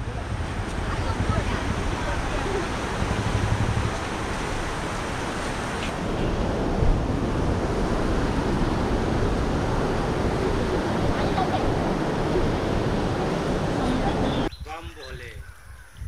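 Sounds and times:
wind rumbling on microphone: 0.0 - 16.0
river pouring over rocks: 1.5 - 6.2.

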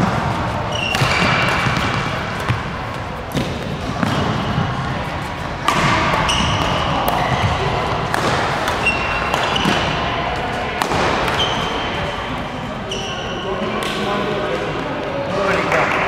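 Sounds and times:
rackets striking shuttlecock: 0.0 - 12.0
shoes squeaking on floor: 0.5 - 2.9, 6.1 - 7.7, 8.8 - 9.8, 11.3 - 12.0, 12.9 - 13.6.

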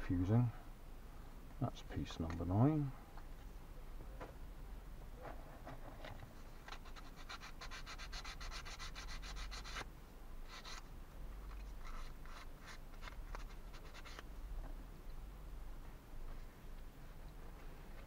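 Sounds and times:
sanding plywood rasping strokes: 6.7 - 9.8.

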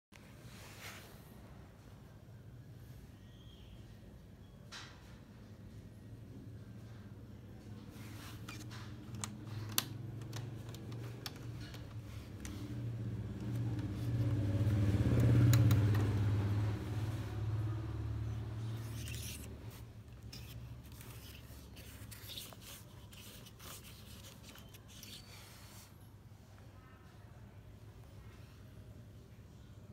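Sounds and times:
low mechanical rumble: 5.8 - 26.1.

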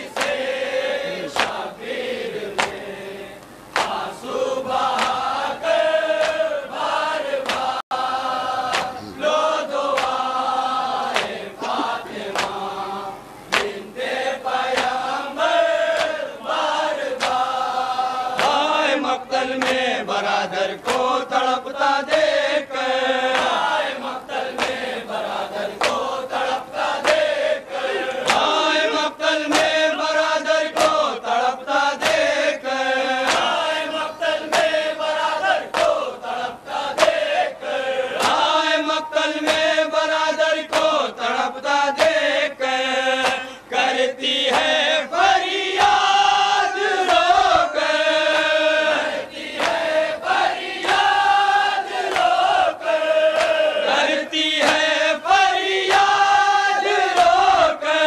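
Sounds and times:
men chanting in chorus: 0.0 - 58.0
chest-beating slaps: 8.7 - 9.0, 13.5 - 13.8.

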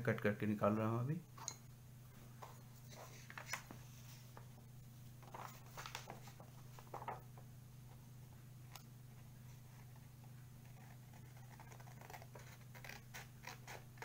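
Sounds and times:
steady low hum: 0.0 - 14.0
paper rustling: 5.2 - 7.2
scissors cutting paper: 10.6 - 14.0.

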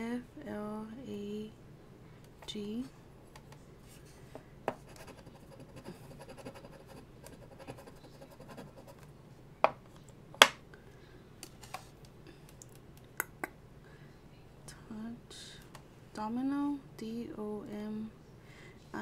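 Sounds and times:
scratching lottery ticket: 4.9 - 8.9.

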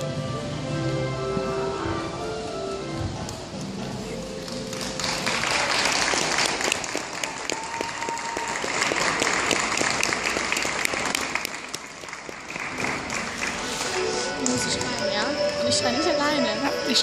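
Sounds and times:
audience applauding: 4.0 - 15.0.

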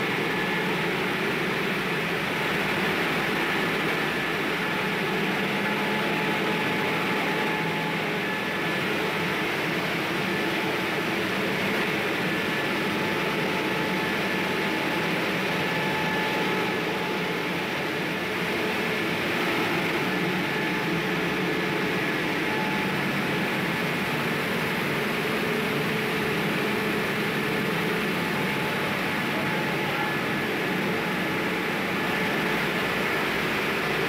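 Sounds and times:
faint steady whining tones: 0.0 - 34.0
rice mill machinery humming: 0.0 - 34.0.

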